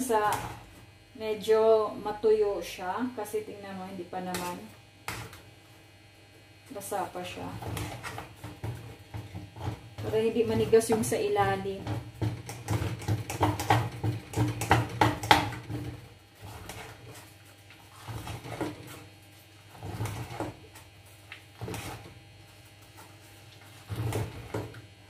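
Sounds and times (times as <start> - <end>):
metal spoon scraping a pot: 15.6 - 19.1.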